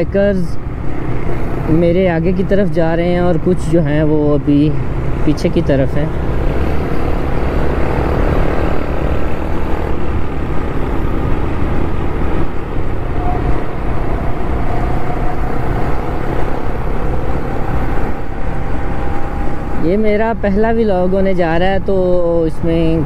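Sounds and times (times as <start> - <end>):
wind rushing on microphone: 0.0 - 23.0
faint rising tone: 6.1 - 19.8.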